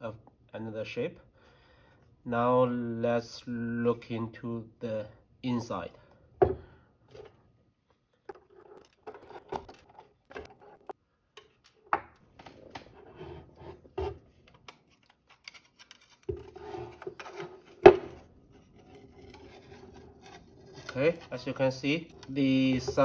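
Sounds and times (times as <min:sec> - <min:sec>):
metal plate rubbing scrape: 0:16.4 - 0:23.0.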